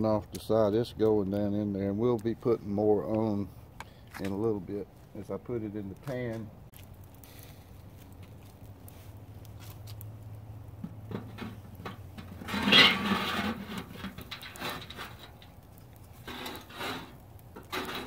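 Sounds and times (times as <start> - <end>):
shovel scraping coals: 6.1 - 18.0.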